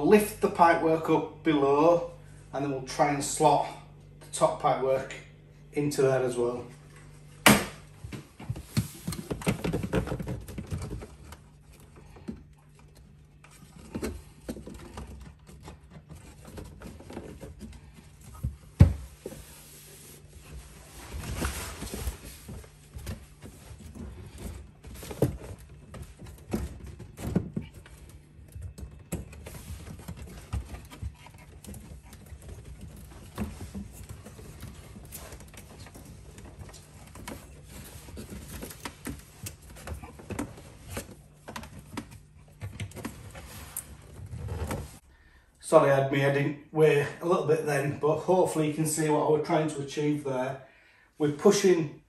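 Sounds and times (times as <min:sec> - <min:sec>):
rustling: 0:08.2 - 0:45.0.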